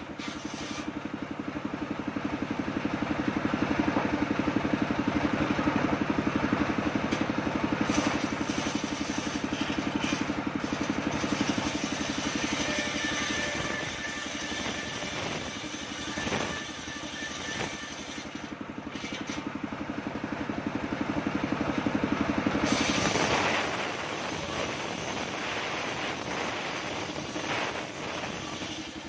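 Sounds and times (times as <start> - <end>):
circular saw ripping wood: 0.0 - 1.0, 7.1 - 19.5, 22.6 - 29.0
engine running: 0.0 - 29.0.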